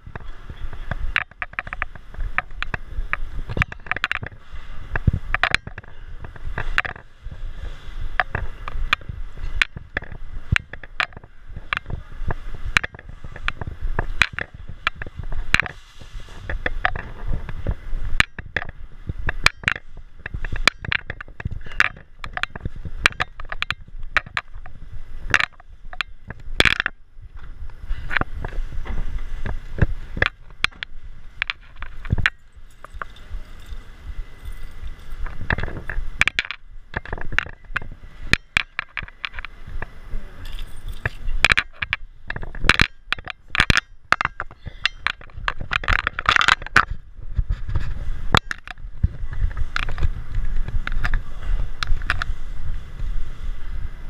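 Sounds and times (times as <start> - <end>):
wind on microphone: 0.0 - 54.0
camera rig rattling on concrete: 31.4 - 39.5, 40.4 - 48.8.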